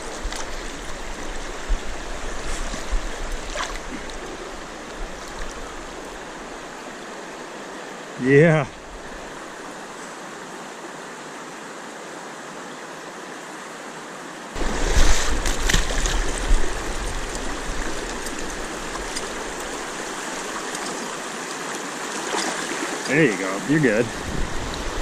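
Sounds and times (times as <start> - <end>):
river current rushing: 0.0 - 25.0
fish splashing in water: 14.6 - 21.2.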